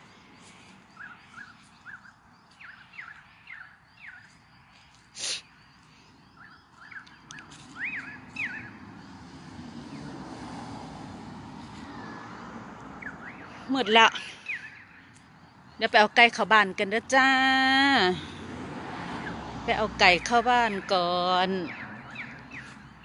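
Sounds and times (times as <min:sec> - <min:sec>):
bird chirping: 0:00.0 - 0:09.2, 0:13.0 - 0:16.0, 0:20.0 - 0:23.0.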